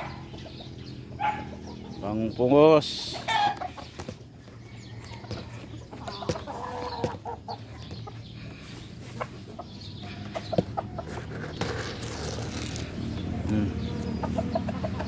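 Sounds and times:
rooster clucking: 0:03.0 - 0:11.3, 0:13.5 - 0:15.0.

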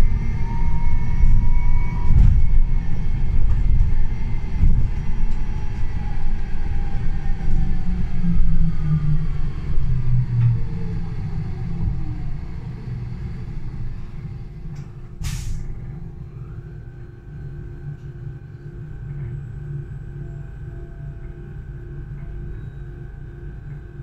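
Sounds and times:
electric bus drive whine: 0:00.0 - 0:24.0
low rumble: 0:00.0 - 0:24.0
compressed air hiss: 0:15.2 - 0:15.7
steady high tone: 0:16.0 - 0:24.0.

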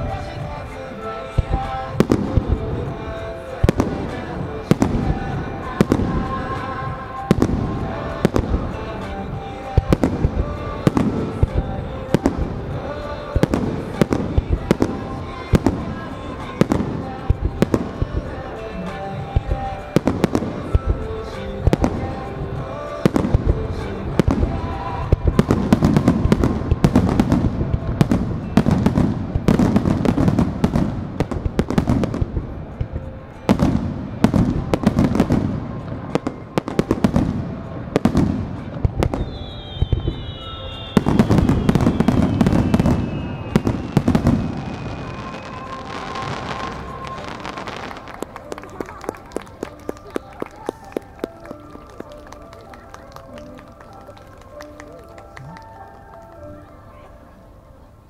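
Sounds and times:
fireworks booming and crackling: 0:00.0 - 0:54.8
falling firework whistle: 0:39.1 - 0:48.2.

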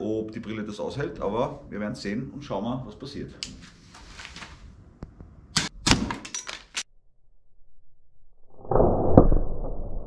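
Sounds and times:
muffled rumbling noise: 0:07.6 - 0:10.0.

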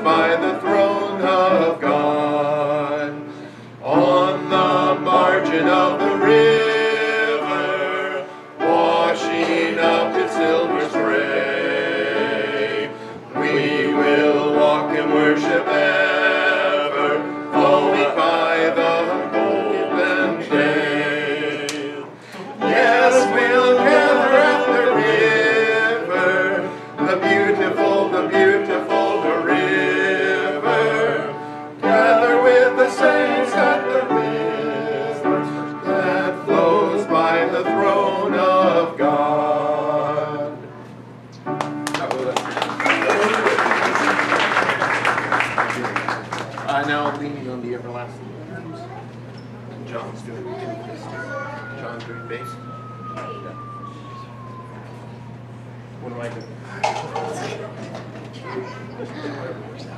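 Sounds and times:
male vocal quartet singing: 0:00.0 - 0:40.9.

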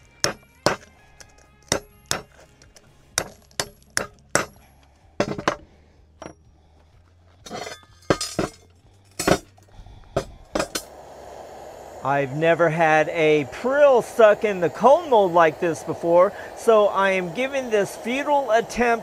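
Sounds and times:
loose slag rattling and scraping: 0:00.1 - 0:06.4, 0:07.3 - 0:10.9
hammer striking slag in metal mold: 0:00.2 - 0:00.9, 0:01.7 - 0:02.4, 0:03.2 - 0:04.6, 0:09.2 - 0:09.5, 0:10.2 - 0:10.9.

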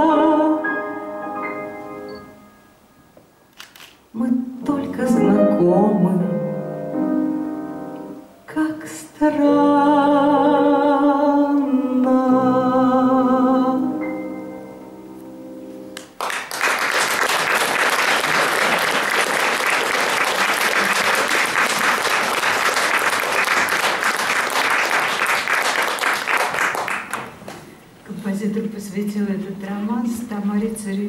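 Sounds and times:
woman singing with vibrato: 0:00.0 - 0:00.7, 0:04.2 - 0:06.4, 0:08.5 - 0:14.1
audience applause: 0:16.2 - 0:27.4.

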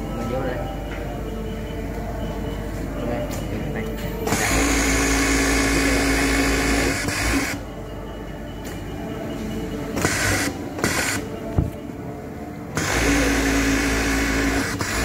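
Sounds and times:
overlock sewing machine running: 0:04.3 - 0:07.6, 0:12.8 - 0:15.0.

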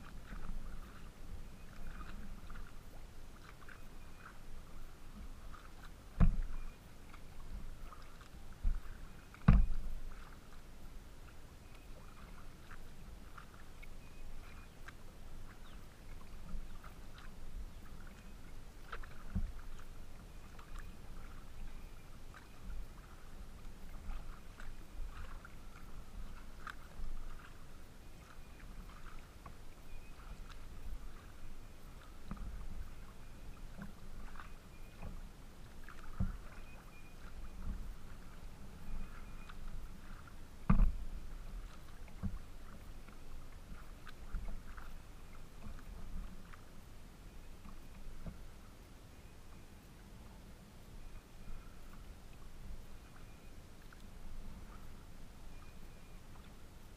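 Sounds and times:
paddle strokes splashing: 0:00.0 - 0:56.9
water lapping against hull: 0:00.0 - 0:56.9
knocks on kayak hull: 0:09.5 - 0:09.8.

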